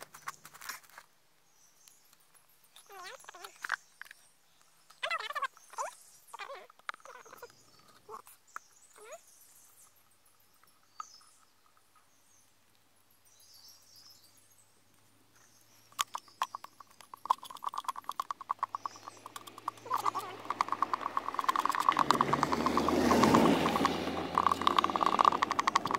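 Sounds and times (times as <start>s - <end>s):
stick stirring wet plaster: 16.0s - 25.9s
stick knocking plastic bottle: 17.3s - 25.9s.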